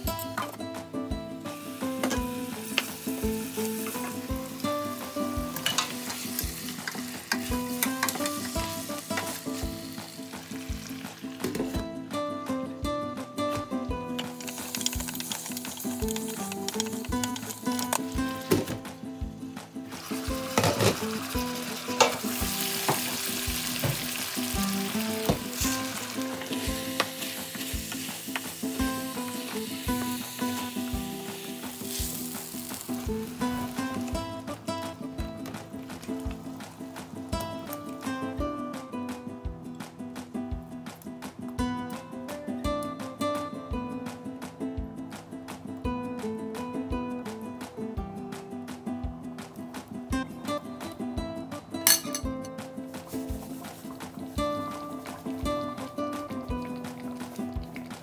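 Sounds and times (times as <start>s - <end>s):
background music with beat: 0.0s - 58.0s
meat sizzling in a pot: 1.5s - 11.8s, 14.2s - 38.9s, 52.8s - 58.0s.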